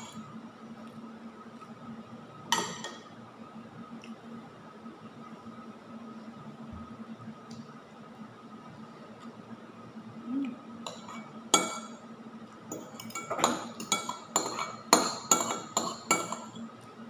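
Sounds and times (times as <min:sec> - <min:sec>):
metal spoon clinking on bowl: 0:12.7 - 0:16.6.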